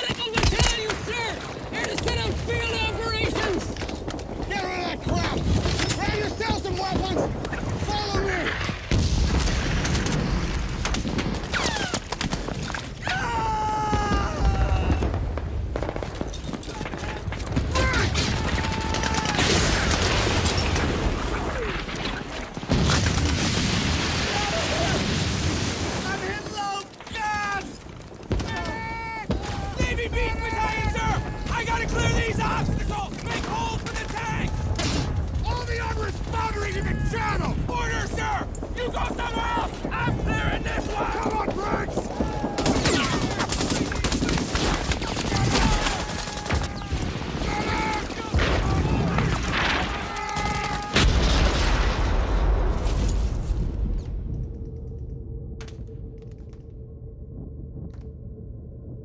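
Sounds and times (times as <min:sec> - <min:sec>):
explosions rumbling: 0:00.0 - 0:59.0
rifle and machine-gun fire: 0:08.8 - 0:12.6, 0:13.9 - 0:21.6, 0:37.6 - 0:51.8.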